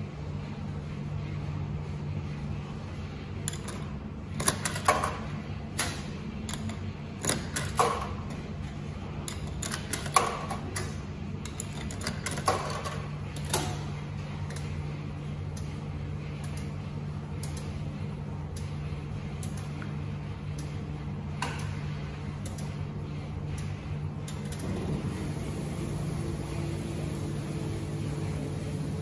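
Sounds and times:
steady low hum: 0.0s - 29.0s
coin slot metallic clicks: 9.3s - 13.6s.

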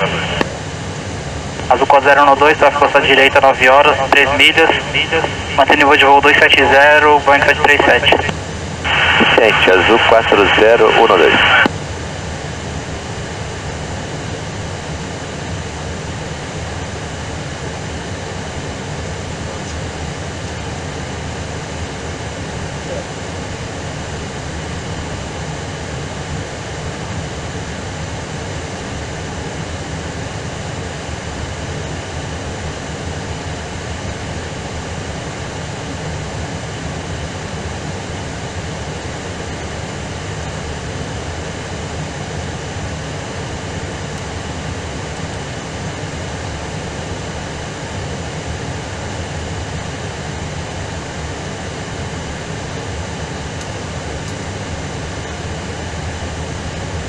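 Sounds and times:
airplane cabin rumble: 0.0s - 36.8s.

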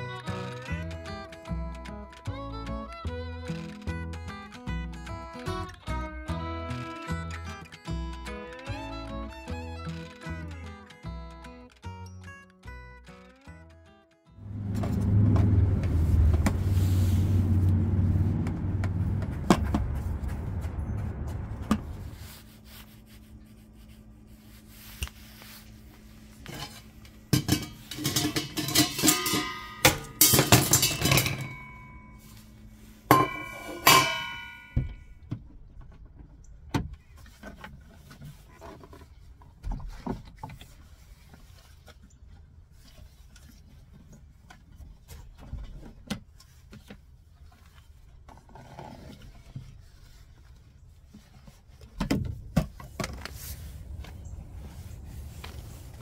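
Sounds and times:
handling bumps: 14.4s - 22.2s, 26.4s - 32.3s, 33.0s - 36.2s
metal kitchenware clattering: 26.5s - 32.2s, 33.1s - 35.0s.

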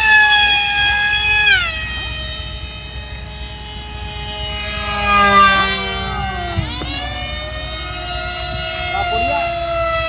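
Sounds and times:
electric motor whining: 0.0s - 10.0s.

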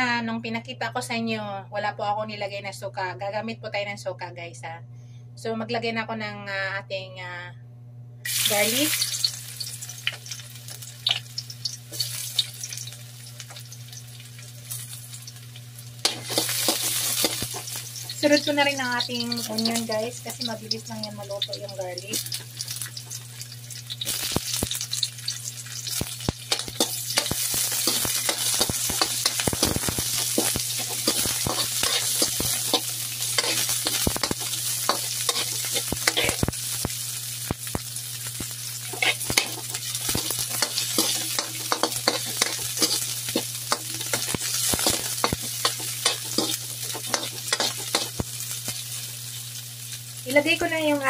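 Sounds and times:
garlic and onion sizzling in oil: 8.3s - 51.0s
metal spoon scraping a wok: 16.0s - 17.8s, 26.5s - 36.5s, 38.9s - 48.2s.

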